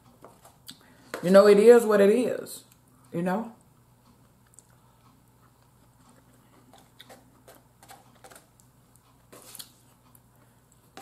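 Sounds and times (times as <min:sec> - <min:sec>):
chewing food: 0:03.7 - 0:10.9.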